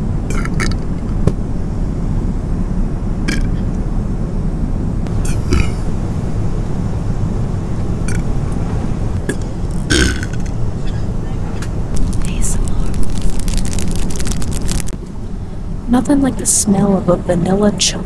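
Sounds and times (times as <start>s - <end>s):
airliner cabin rumble: 0.0s - 18.0s
clicks and rustles: 11.9s - 15.0s.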